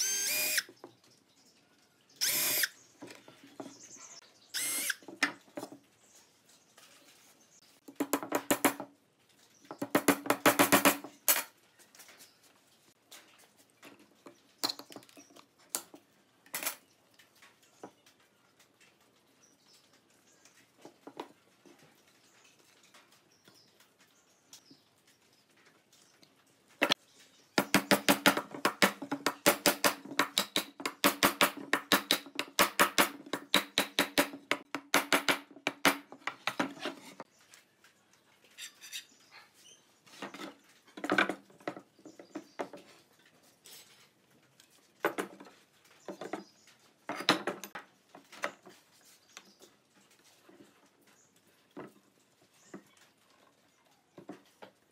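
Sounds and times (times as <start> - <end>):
rapid sharp taps and knocks: 9.7 - 11.2, 27.6 - 36.7.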